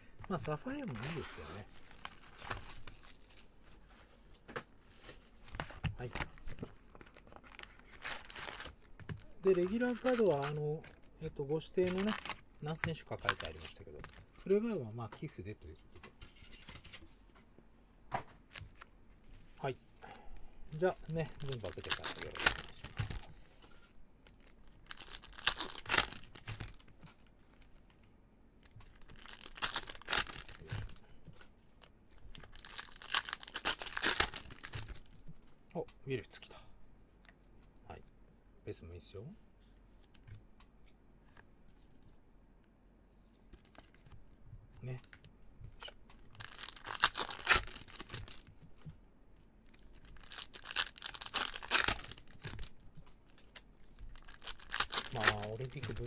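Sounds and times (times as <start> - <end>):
cards and plastic holders rustling: 0.2 - 17.4, 20.8 - 35.5, 43.4 - 49.0, 49.6 - 56.0
foil wrappers tearing and crinkling: 0.3 - 3.5, 5.5 - 11.0, 11.6 - 14.1, 20.8 - 23.4, 24.3 - 27.3, 28.8 - 31.0, 32.3 - 35.2, 45.8 - 48.5, 49.6 - 56.0
tearing and rustling: 45.8 - 48.5, 49.7 - 56.0.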